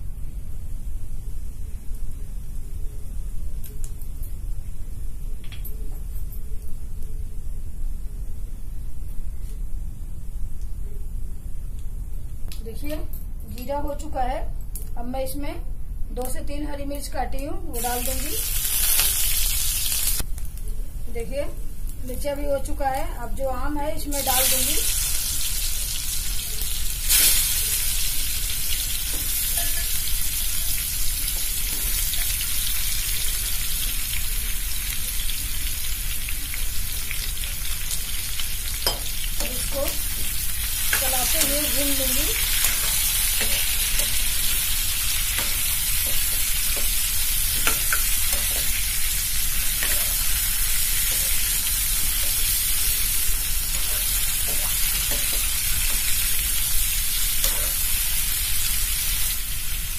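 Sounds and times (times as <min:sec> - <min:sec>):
mango sizzling in hot ghee: 0:17.0 - 0:59.9.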